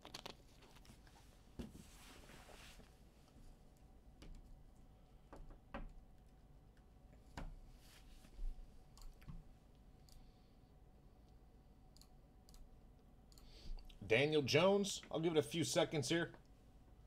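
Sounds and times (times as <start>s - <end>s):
faint irregular clicks: 8.9s - 10.4s, 11.2s - 14.0s.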